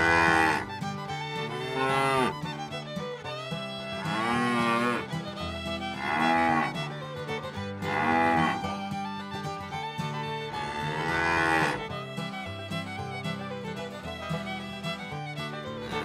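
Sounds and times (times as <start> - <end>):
cows mooing: 0.0 - 0.8, 1.4 - 2.3, 4.0 - 5.1, 5.9 - 6.8, 7.8 - 8.7, 10.5 - 12.0
background music: 0.0 - 16.0.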